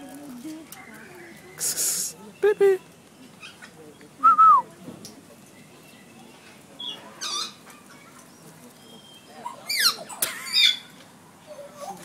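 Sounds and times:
parrot squawking: 0:06.8 - 0:07.6, 0:09.6 - 0:10.9.

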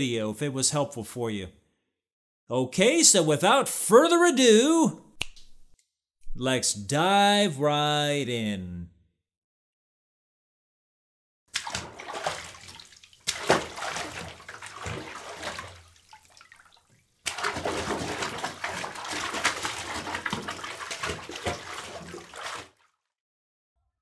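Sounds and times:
water running and splashing: 0:11.6 - 0:22.9.

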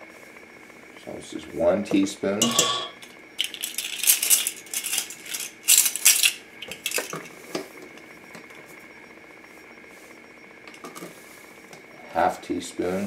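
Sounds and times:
plastic measuring spoons clattering: 0:02.4 - 0:07.3.

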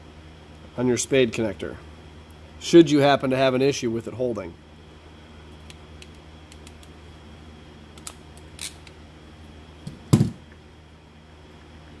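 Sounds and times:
crimping tool thump: 0:09.9 - 0:10.4.

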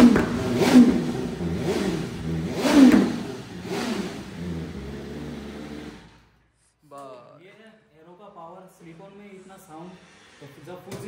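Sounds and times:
motorcycle engine revving: 0:00.0 - 0:06.4.

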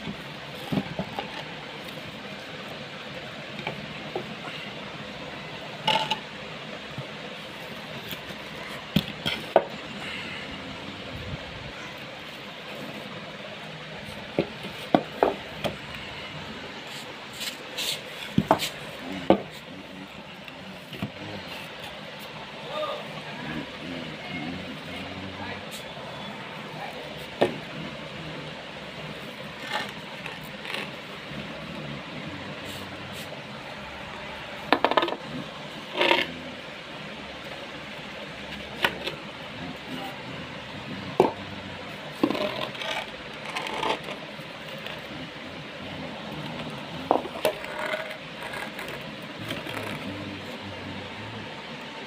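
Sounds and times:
background hiss: 0:00.0 - 0:52.0
wooden bats knocking: 0:14.3 - 0:15.8.

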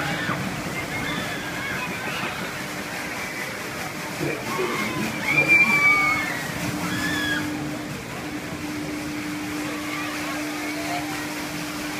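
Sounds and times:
ride mechanical hum: 0:00.0 - 0:11.9
riders crying out: 0:04.2 - 0:07.6.

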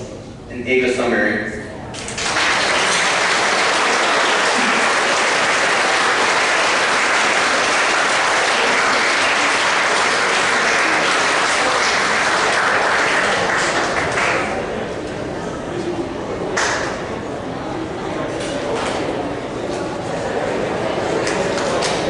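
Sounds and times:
audience clapping: 0:02.0 - 0:14.9, 0:16.6 - 0:17.0.

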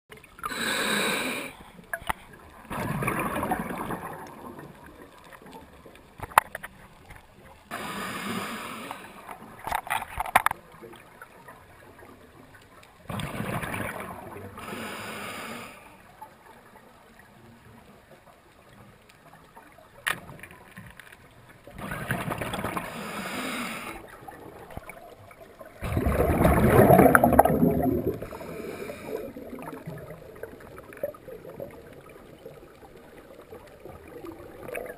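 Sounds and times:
water rushing and gurgling: 0:00.1 - 0:18.8, 0:21.6 - 0:34.9
low hiss: 0:07.5 - 0:09.6, 0:14.4 - 0:20.0, 0:22.8 - 0:25.6.

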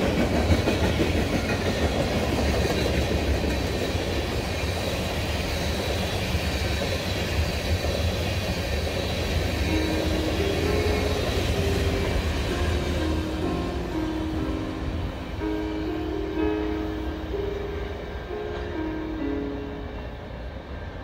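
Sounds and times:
freight train rumbling past: 0:00.0 - 0:21.0
soft melody of held notes: 0:09.7 - 0:20.6.

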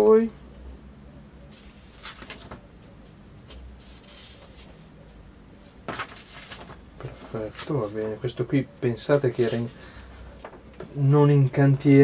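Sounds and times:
paper pages rustling: 0:01.5 - 0:02.6, 0:03.5 - 0:04.8, 0:05.9 - 0:08.1.

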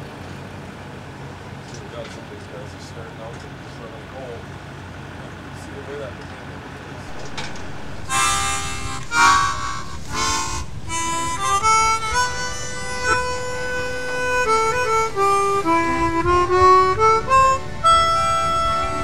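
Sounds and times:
harmonica music: 0:07.1 - 0:19.0.

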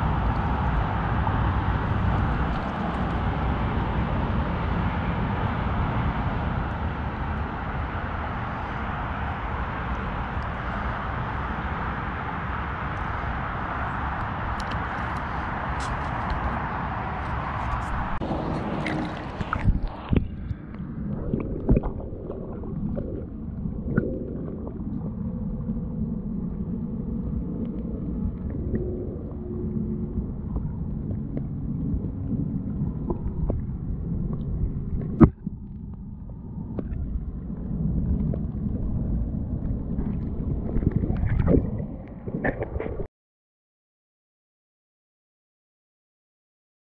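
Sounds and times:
muffled underwater rumble: 0:00.0 - 0:43.1
water splashes: 0:00.0 - 0:43.1
underwater knocks and gurgles: 0:17.8 - 0:43.1.

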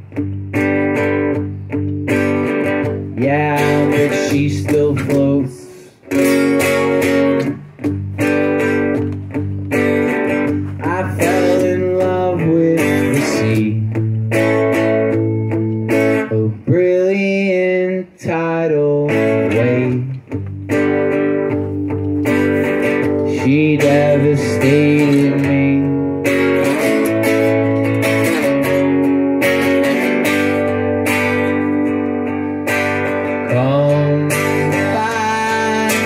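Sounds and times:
acoustic guitar strumming: 0:00.0 - 0:36.0
man singing: 0:03.1 - 0:06.0, 0:10.8 - 0:14.7, 0:16.2 - 0:20.4, 0:23.3 - 0:26.2, 0:33.4 - 0:36.0.

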